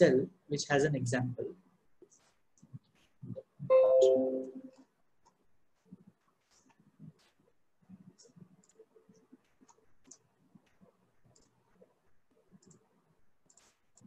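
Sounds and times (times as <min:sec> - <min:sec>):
computer mouse clicks: 0:06.5 - 0:14.0
mouse scroll-wheel ticks: 0:08.1 - 0:14.0.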